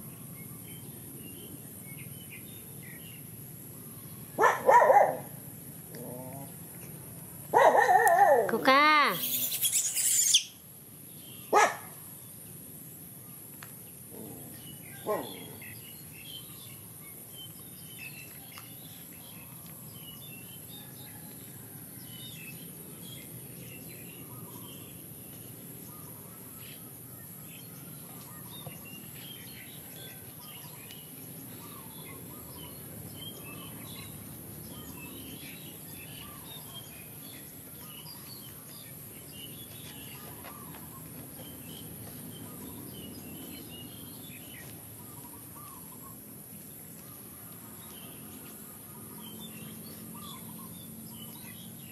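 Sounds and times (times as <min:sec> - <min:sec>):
small birds chirping: 0:00.0 - 0:12.4, 0:22.2 - 0:51.9
high-pitched insect buzz: 0:08.7 - 0:10.6.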